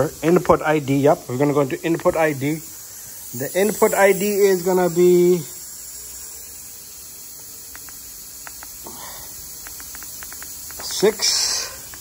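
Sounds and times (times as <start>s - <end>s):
steady background hiss: 0.0s - 12.0s
faint light clicks: 9.6s - 11.0s.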